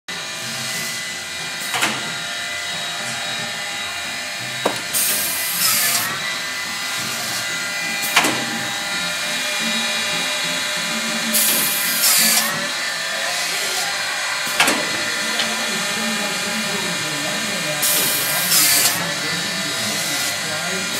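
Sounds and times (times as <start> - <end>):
cut-off saw motor hum: 0.1 - 20.9
saw cutting: 0.1 - 20.9
feed mechanism clicks: 14.5 - 15.5.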